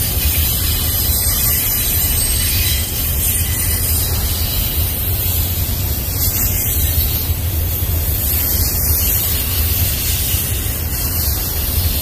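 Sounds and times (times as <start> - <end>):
freight train wheels on rails: 0.0 - 12.0.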